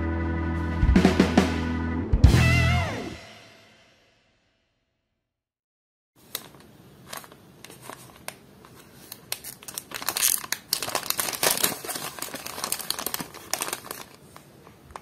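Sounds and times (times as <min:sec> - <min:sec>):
foil packet crinkling: 0:06.2 - 0:15.0.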